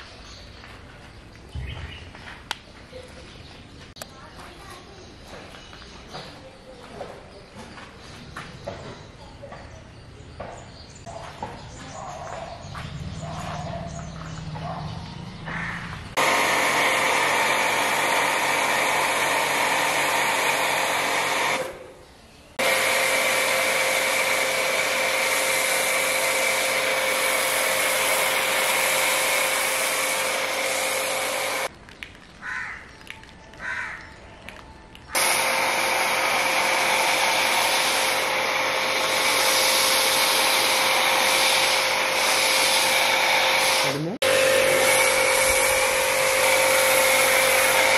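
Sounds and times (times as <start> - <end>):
pump motor hum: 16.2 - 21.9, 22.6 - 31.7, 35.2 - 47.9
pressure washer spray hiss: 22.6 - 31.7, 35.2 - 47.9.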